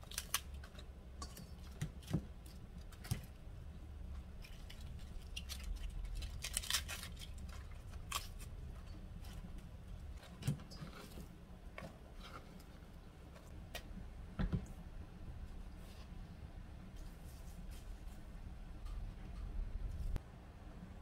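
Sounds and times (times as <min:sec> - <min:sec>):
food rustling in steel bowl: 0:04.2 - 0:13.5.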